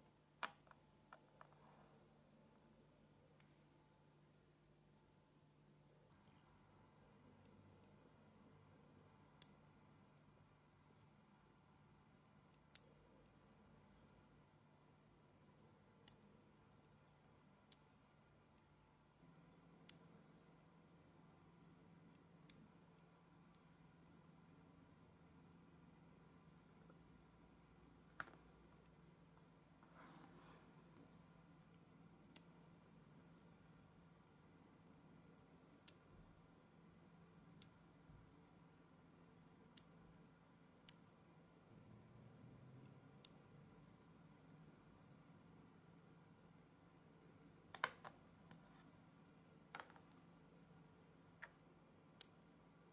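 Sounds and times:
magnet balls snapping together: 0:47.7 - 0:48.2.

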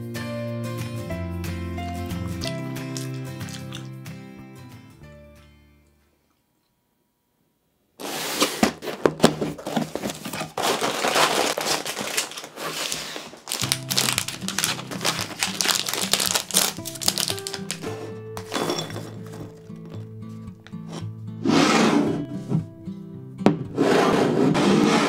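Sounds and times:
background music: 0:00.0 - 0:06.0, 0:13.5 - 0:25.0
plastic packet crinkling: 0:01.9 - 0:04.0, 0:08.8 - 0:20.1.

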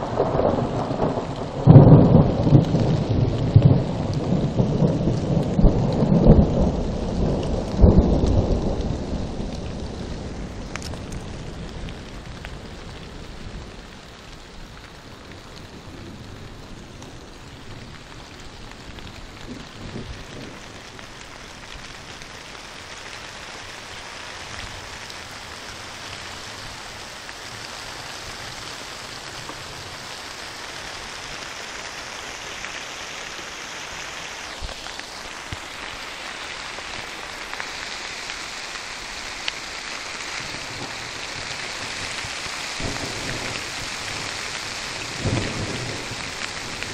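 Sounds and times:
low rumble of thunder: 0:00.0 - 0:14.6, 0:15.2 - 0:22.2, 0:40.3 - 0:46.9
steady rain hissing: 0:00.0 - 0:46.9.

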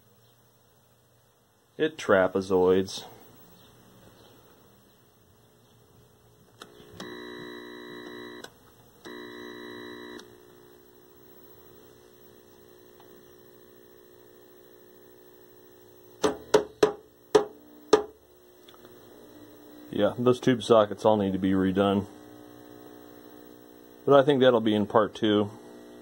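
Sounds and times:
faint steady hum: 0:00.0 - 0:26.0
television buzz: 0:06.6 - 0:26.0.

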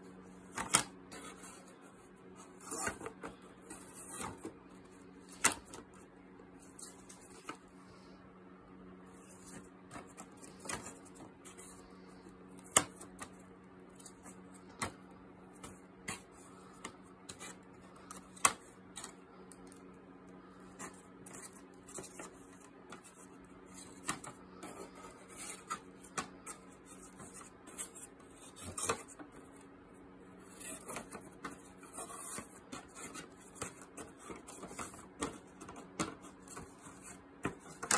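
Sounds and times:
steady low hum: 0:00.0 - 0:37.9.

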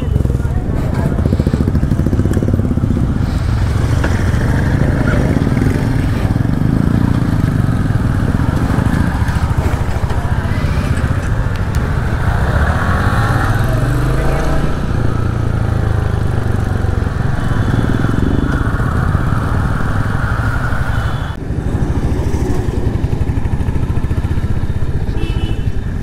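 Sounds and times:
motorcycle engine idling: 0:00.0 - 0:12.5, 0:21.5 - 0:26.0.

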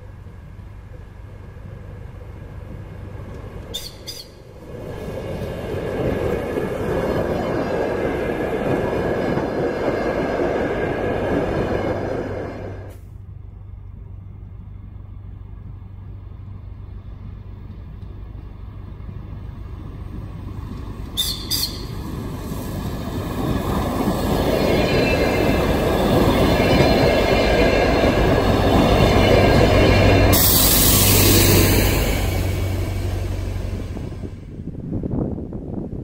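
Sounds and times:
train engine and wheels on rails: 0:00.0 - 0:36.0
hiss of wheel noise: 0:30.3 - 0:34.3.

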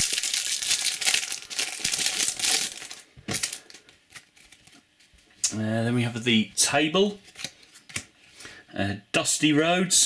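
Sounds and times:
foil wrapper crinkling: 0:00.0 - 0:04.8.

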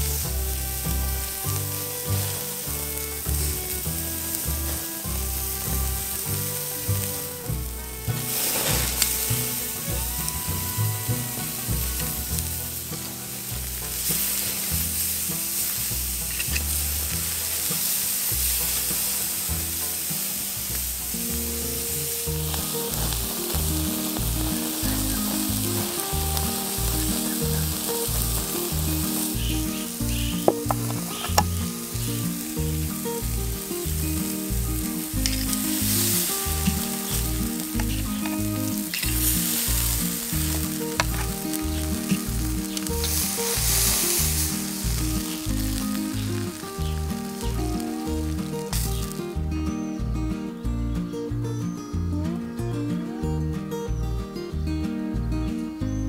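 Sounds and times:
background music with steady beat: 0:00.0 - 0:10.0, 0:21.4 - 0:56.0
steaks sizzling on a grill: 0:00.0 - 0:49.9.

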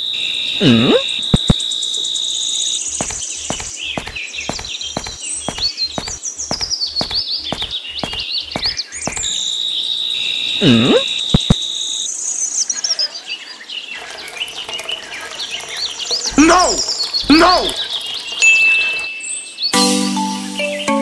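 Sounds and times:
insects chirring: 0:00.0 - 0:19.5
birds chirping: 0:00.0 - 0:19.8
regular ticking: 0:00.6 - 0:01.6, 0:02.9 - 0:09.4, 0:10.7 - 0:11.6, 0:14.0 - 0:19.0
sharp clicks: 0:01.4 - 0:01.6, 0:02.9 - 0:09.4, 0:11.3 - 0:11.6.

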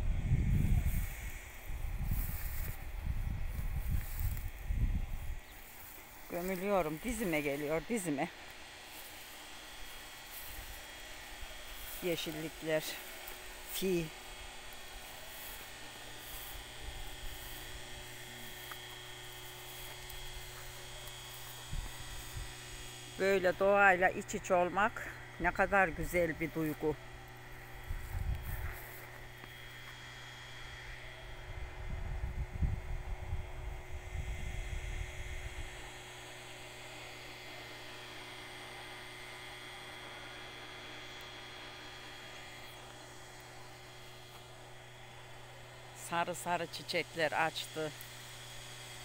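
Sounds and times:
wind buffeting microphone: 0:00.0 - 0:05.4, 0:31.8 - 0:34.6
steady low hum: 0:00.0 - 0:49.0.

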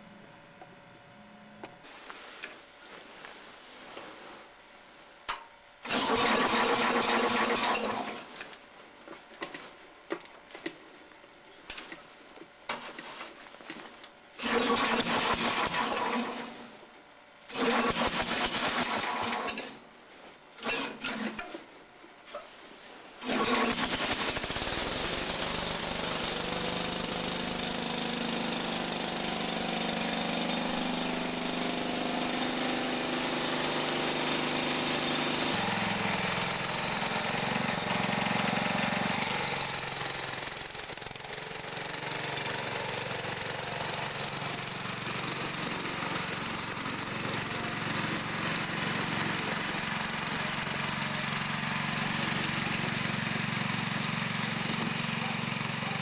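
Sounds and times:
engine starter cranking: 0:05.8 - 0:08.3, 0:14.4 - 0:16.5, 0:17.5 - 0:19.8, 0:20.6 - 0:21.4, 0:23.2 - 0:25.6
engine running steadily: 0:23.2 - 0:56.0.

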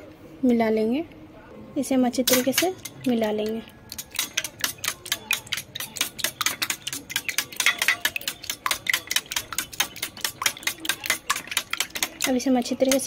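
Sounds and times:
fork beating eggs in metal bowl: 0:02.3 - 0:13.0.

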